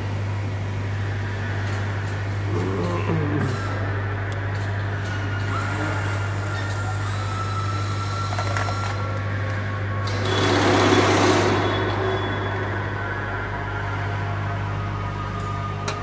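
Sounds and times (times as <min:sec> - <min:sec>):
factory machinery hum: 0:00.0 - 0:16.0.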